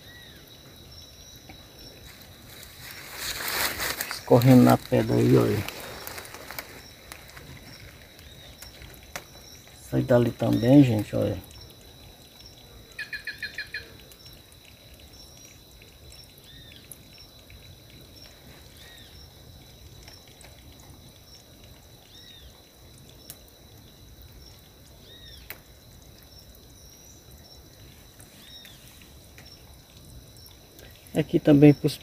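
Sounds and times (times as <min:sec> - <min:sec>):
birds chattering and chirping: 0:00.0 - 0:14.4
high insect drone: 0:00.0 - 0:32.0
water trickling over rock: 0:00.0 - 0:32.0.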